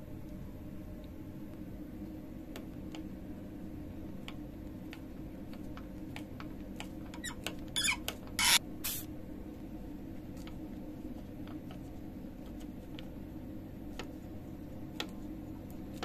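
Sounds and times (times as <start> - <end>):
metal on metal squeaks: 7.2 - 8.6.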